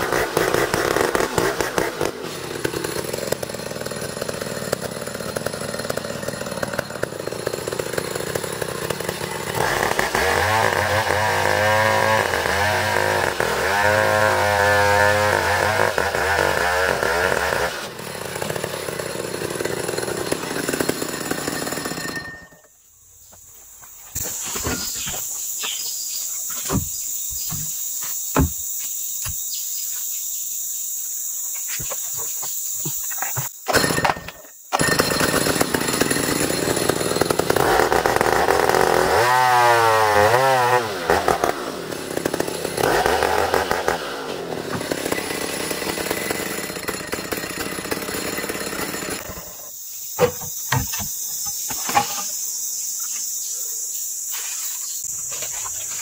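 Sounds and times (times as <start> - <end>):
chainsaw cutting log: 0.0 - 22.7, 26.6 - 29.4, 31.8 - 51.0
insect buzzing: 23.2 - 33.8, 49.2 - 56.0.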